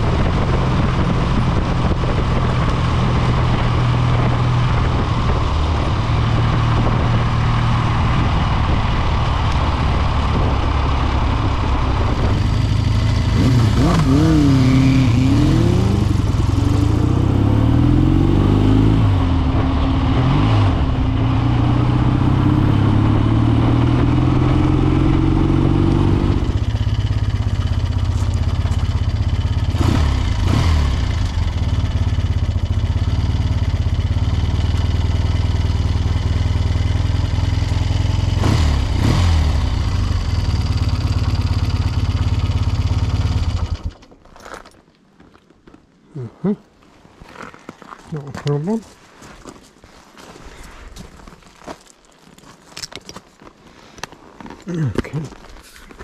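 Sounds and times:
wind noise: 0:00.0 - 0:30.7
motorcycle engine running: 0:00.0 - 0:44.1.

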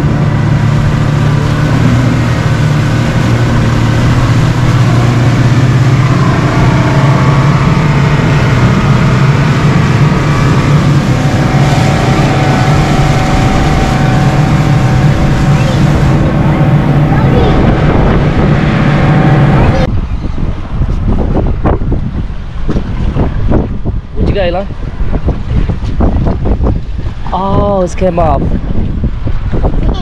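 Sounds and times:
motorboat engine droning: 0:00.0 - 0:30.0.

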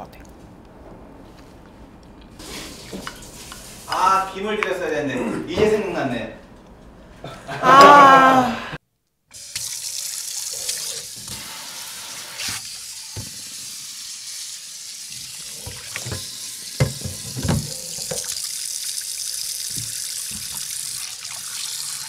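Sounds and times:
tap water running into sink: 0:02.5 - 0:04.0, 0:09.4 - 0:22.0.

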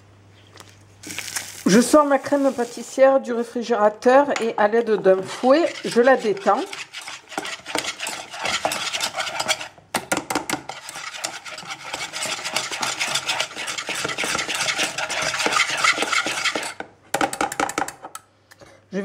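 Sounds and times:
whisk scraping a saucepan: 0:05.0 - 0:09.8, 0:10.6 - 0:16.8.

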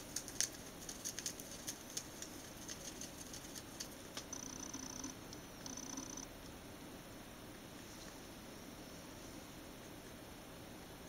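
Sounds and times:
rabbit chewing paper: 0:00.0 - 0:06.2.

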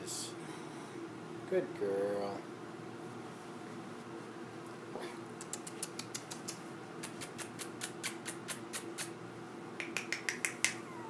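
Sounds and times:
faint steady hum: 0:00.0 - 0:11.0
person making sharp clicks: 0:05.4 - 0:09.1, 0:09.8 - 0:10.8.

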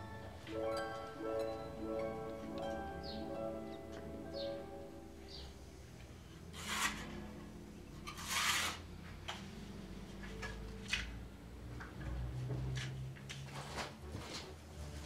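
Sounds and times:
spirit level scraping on wall: 0:06.5 - 0:07.2, 0:08.1 - 0:08.8.

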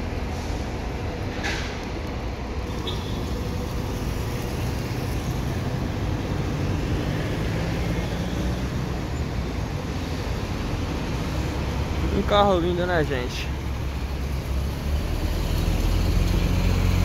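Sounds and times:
coach diesel engine rumbling: 0:00.0 - 0:07.0.

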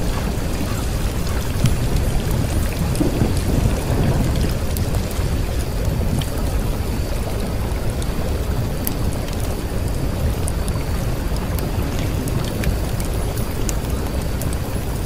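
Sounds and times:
steady rain: 0:00.0 - 0:15.0.

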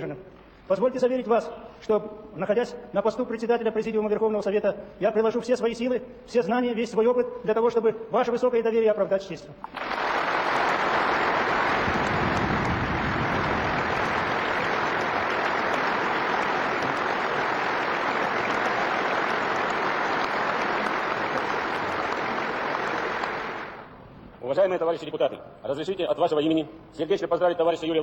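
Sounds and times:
audience applauding: 0:09.7 - 0:23.9.

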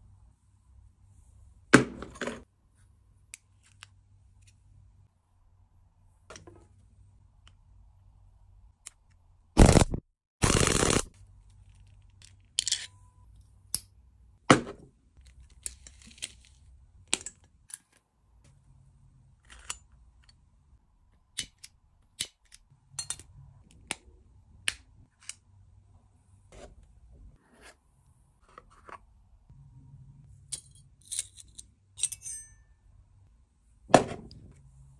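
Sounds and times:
metal jewellery clicking and clinking: 0:30.5 - 0:32.8.

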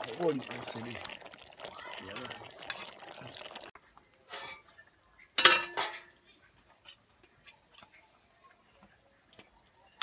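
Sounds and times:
metal utensil clanking on pot: 0:05.4 - 0:06.1.

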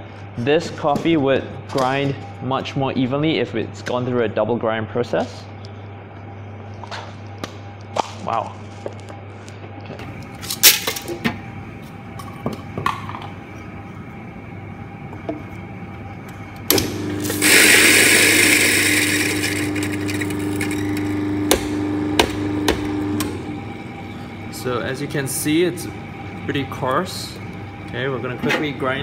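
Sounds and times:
coffee grinder grinding: 0:17.0 - 0:23.2
coffee beans clattering into hopper: 0:17.3 - 0:20.8.

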